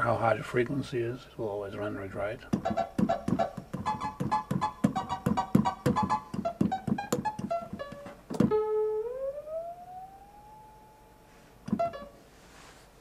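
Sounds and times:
synthesizer notes: 0:02.6 - 0:12.2.

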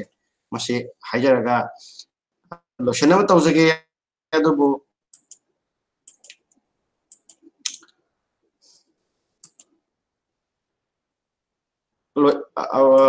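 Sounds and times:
computer key clicks: 0:05.1 - 0:05.4, 0:06.1 - 0:07.9, 0:09.4 - 0:09.7.

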